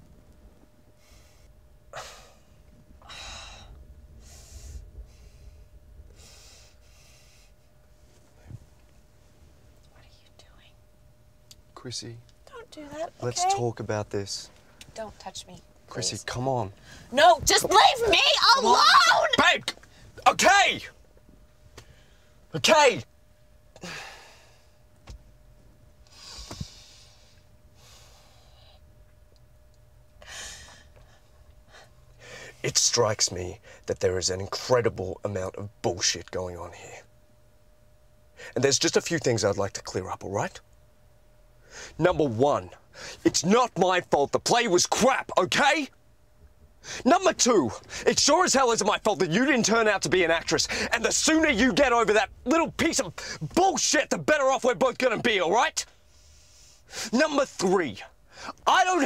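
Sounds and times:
person breathing: 0:01.0 - 0:07.6, 0:23.8 - 0:24.8, 0:26.1 - 0:28.8, 0:30.2 - 0:32.6, 0:41.6 - 0:42.0, 0:42.9 - 0:43.2, 0:55.9 - 0:57.1
person sighing breathily: 0:02.0 - 0:05.5, 0:23.8 - 0:24.6.

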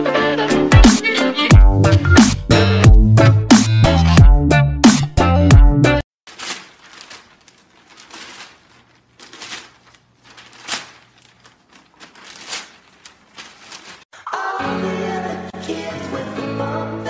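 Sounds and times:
newspaper rustling and crinkling: 0:06.2 - 0:14.1.

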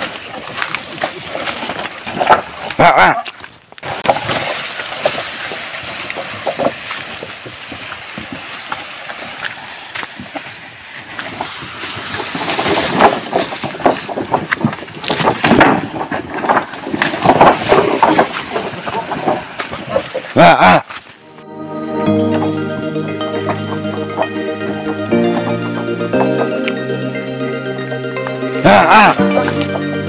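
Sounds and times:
wooden poles knocking and clattering: 0:00.0 - 0:21.2, 0:28.6 - 0:30.0
wooden poles scraping on trail: 0:00.0 - 0:21.2.

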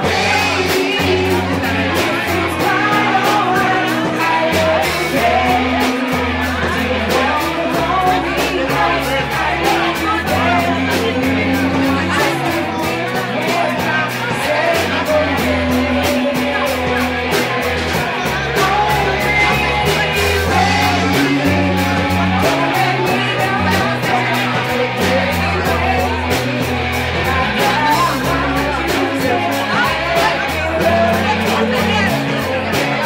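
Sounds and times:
live band playing: 0:00.0 - 0:33.0
person singing: 0:00.0 - 0:33.0.

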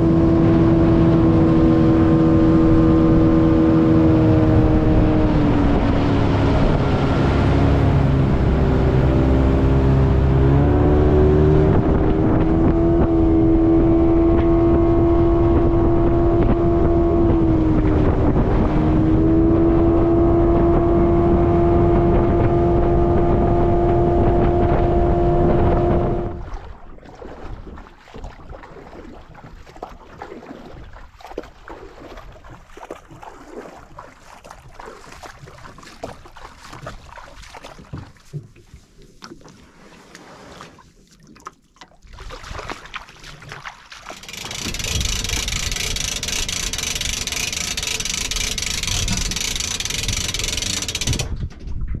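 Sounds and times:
water lapping around a boat: 0:00.0 - 0:52.0
wind: 0:00.0 - 0:52.0
small knocks on boat: 0:35.2 - 0:39.5.

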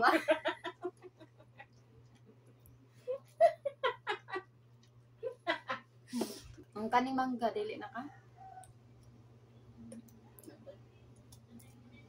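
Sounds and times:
women giggling: 0:00.0 - 0:01.7, 0:03.0 - 0:04.6, 0:05.2 - 0:05.9
faint low hum: 0:00.0 - 0:12.0.

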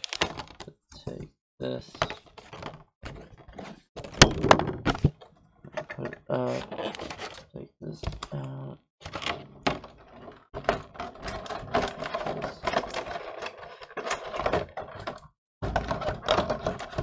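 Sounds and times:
plastic packaging crinkling: 0:00.0 - 0:00.5.

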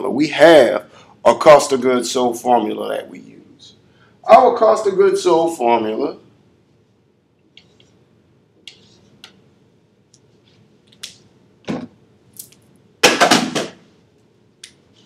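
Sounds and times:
marker clicks on whiteboard: 0:08.6 - 0:09.4.

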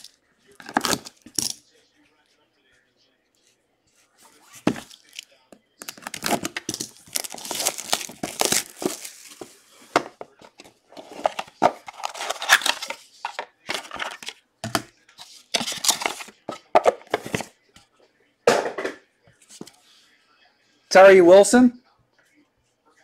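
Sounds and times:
plastic shrink wrap crinkling: 0:05.8 - 0:09.6.

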